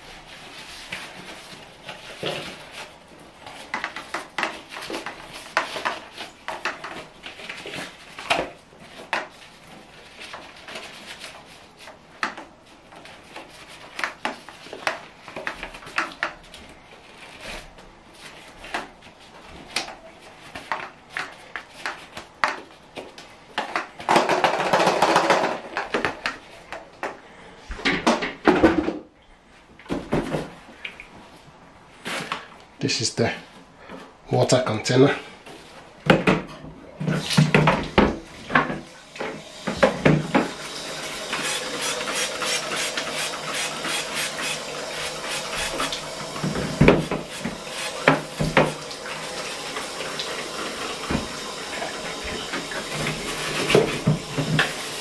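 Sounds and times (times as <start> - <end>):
plastic parts knocking and clattering: 3.6 - 9.4, 23.6 - 26.8, 27.8 - 29.1.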